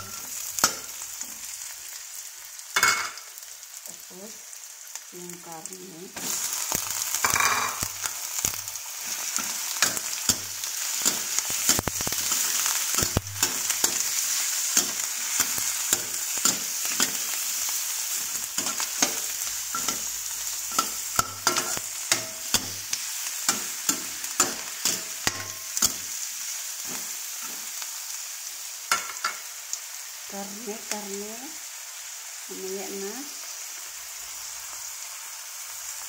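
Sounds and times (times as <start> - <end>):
meat and onion sizzling in oil: 0.0 - 36.0
metal spatula scraping wok: 9.0 - 26.2.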